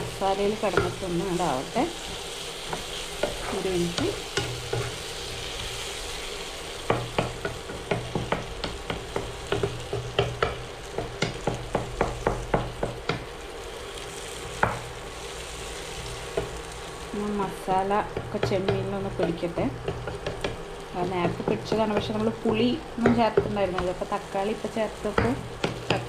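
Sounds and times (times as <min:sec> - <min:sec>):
spatula tapping and scraping pan: 0:00.0 - 0:01.4, 0:02.0 - 0:05.8, 0:06.8 - 0:13.3, 0:14.5 - 0:14.9, 0:18.1 - 0:24.1, 0:24.7 - 0:26.0
food sizzling in frying pan: 0:00.0 - 0:26.0.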